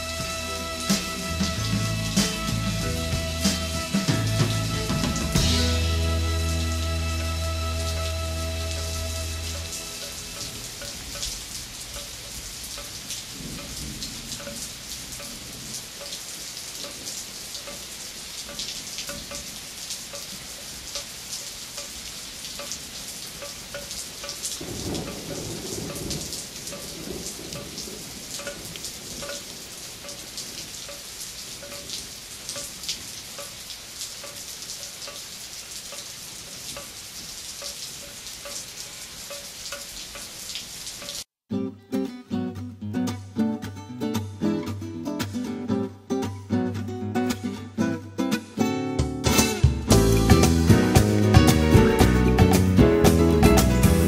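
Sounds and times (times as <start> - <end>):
rain falling: 0.0 - 41.3, 44.1 - 54.0
thunder rumble: 13.2 - 16.0, 24.6 - 30.6.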